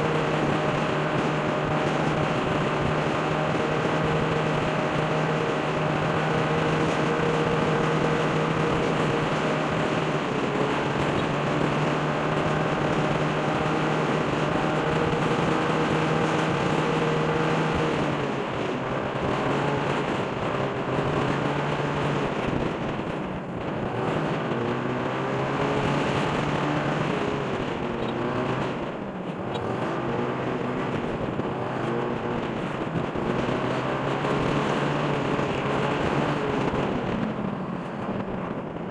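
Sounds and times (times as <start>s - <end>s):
motorcycle engine running: 0.0s - 38.9s.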